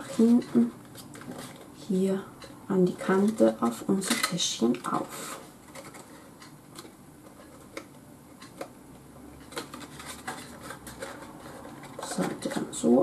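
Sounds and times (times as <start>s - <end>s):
paper rustling: 9.5s - 13.0s.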